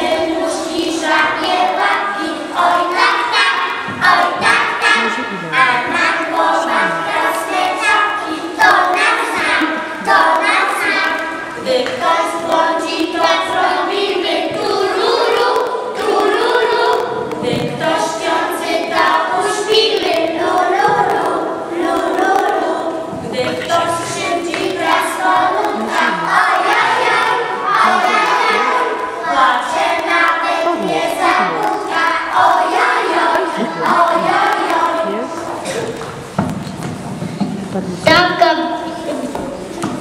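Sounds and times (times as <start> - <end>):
children singing in unison: 0.0 - 36.9.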